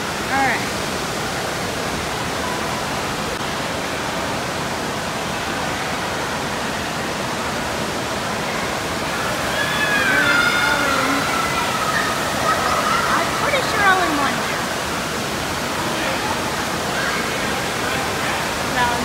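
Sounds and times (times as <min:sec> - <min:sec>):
water rushing down slides: 0:00.0 - 0:19.0.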